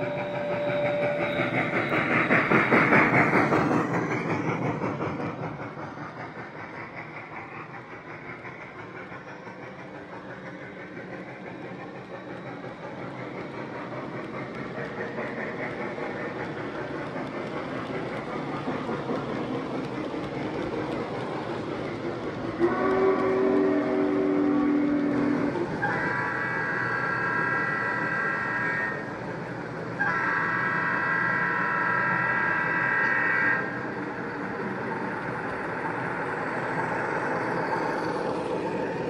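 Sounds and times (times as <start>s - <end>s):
train whistle: 0.0s - 2.1s, 22.5s - 29.1s, 30.0s - 33.8s
model train wheels rumbling: 0.0s - 39.0s.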